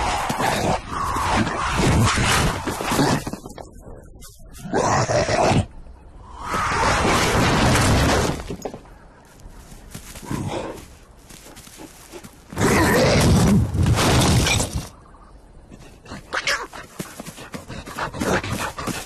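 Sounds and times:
cartoon boulders crashing: 6.7s - 8.8s, 12.6s - 15.0s.

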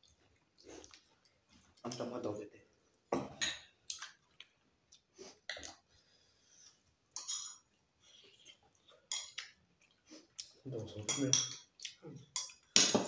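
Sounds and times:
chewing and mouth noises: 0.0s - 2.0s, 3.8s - 5.9s
plates and spoons clinking: 7.2s - 7.6s, 10.9s - 11.7s, 12.3s - 13.0s.

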